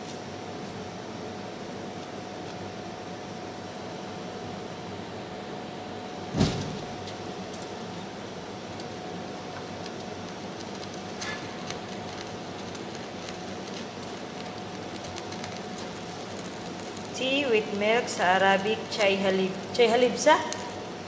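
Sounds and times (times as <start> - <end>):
gas burner hissing: 6.2 - 21.0
loud thump: 6.3 - 7.0
bubbling clicks and ticks: 8.7 - 21.0.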